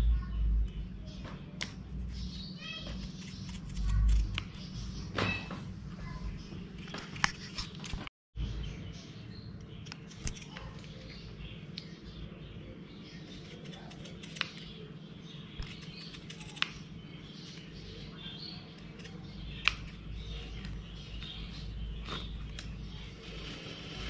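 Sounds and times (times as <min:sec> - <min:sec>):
scissors snipping rubber: 0:03.1 - 0:04.7, 0:09.8 - 0:10.9, 0:13.3 - 0:14.8, 0:15.6 - 0:16.8.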